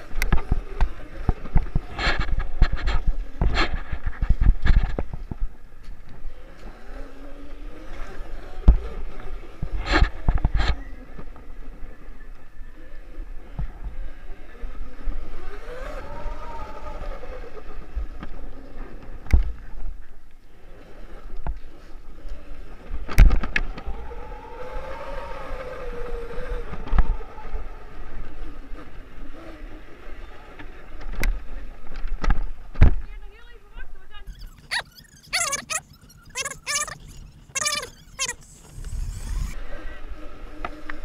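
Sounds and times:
electric moped motor whining: 0:06.1 - 0:19.1, 0:20.6 - 0:30.6, 0:34.2 - 0:41.0.

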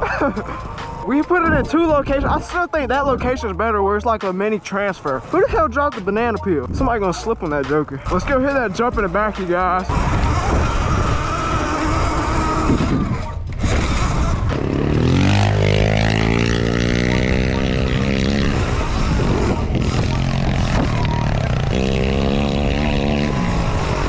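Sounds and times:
dirt bike revving: 0:05.0 - 0:24.0
wind buffeting microphone: 0:09.9 - 0:24.0.

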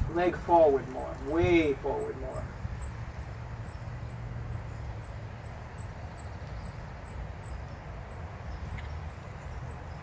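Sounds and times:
insect chirping: 0:02.0 - 0:10.0.

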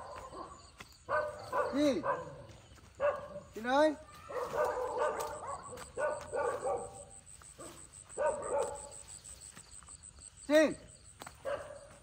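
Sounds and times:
dog barking: 0:00.0 - 0:03.6, 0:04.2 - 0:09.0, 0:11.4 - 0:12.0.

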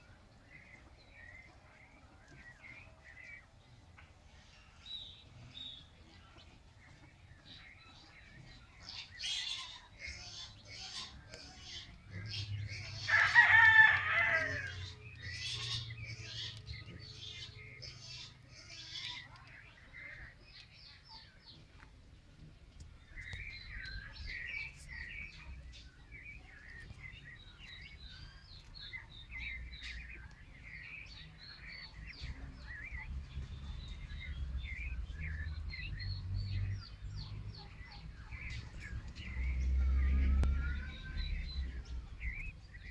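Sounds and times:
small birds chirping: 0:00.0 - 0:42.9
low rumble on microphone: 0:31.3 - 0:42.9.

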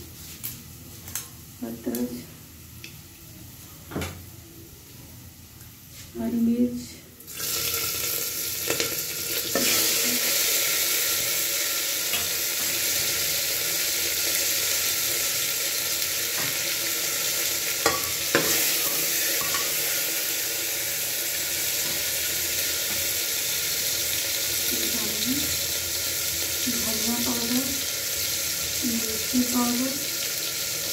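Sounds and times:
oil sizzling in a pot: 0:07.2 - 0:30.9.

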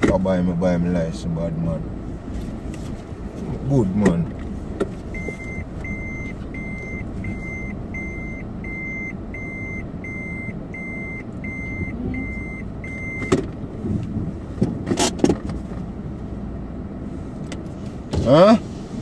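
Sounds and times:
car engine humming: 0:00.0 - 0:19.0
car warning beeps: 0:05.1 - 0:13.6.

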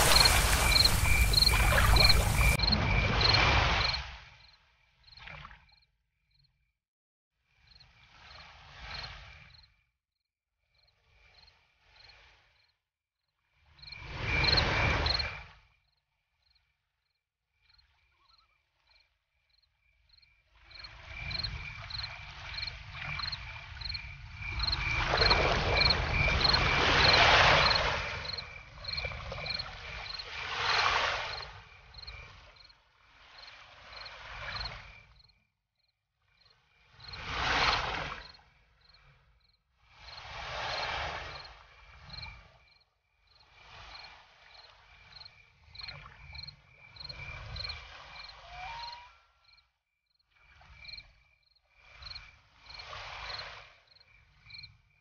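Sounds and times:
small creature chirping: 0:00.0 - 0:02.6
rushing noise: 0:00.0 - 0:03.3.

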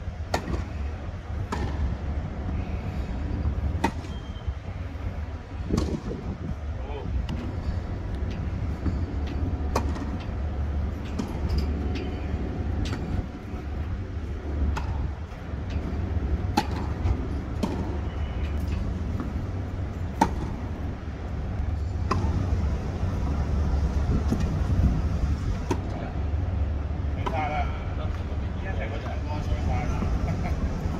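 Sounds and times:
wind rumble on microphone: 0:00.0 - 0:27.2
rackets striking tennis ball: 0:00.3 - 0:00.7, 0:01.4 - 0:01.9, 0:03.7 - 0:04.2, 0:05.7 - 0:06.2, 0:08.3 - 0:12.2, 0:12.8 - 0:13.4, 0:14.6 - 0:20.8, 0:21.8 - 0:22.7, 0:25.5 - 0:26.0
tennis ball bouncing: 0:14.7 - 0:15.0, 0:15.8 - 0:18.0, 0:20.1 - 0:20.7, 0:22.0 - 0:22.6.

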